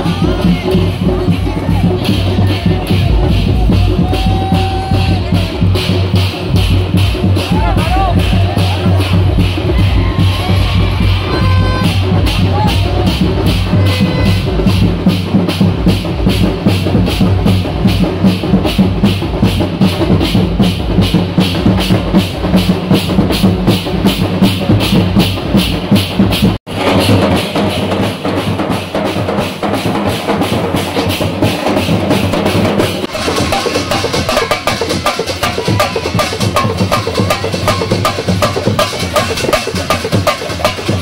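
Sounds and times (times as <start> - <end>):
loud drum-driven music: 0.0 - 41.0.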